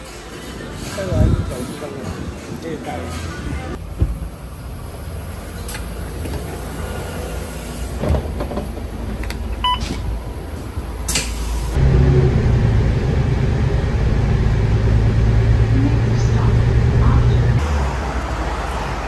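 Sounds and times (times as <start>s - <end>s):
vehicle rumble: 2.2s - 19.0s
low engine hum: 11.7s - 19.0s.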